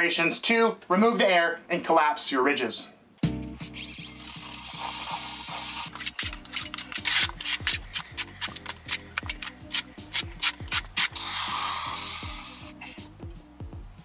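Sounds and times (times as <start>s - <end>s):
drill mixer whirring: 3.8s - 6.0s
trowel scraping mortar: 4.8s - 12.7s.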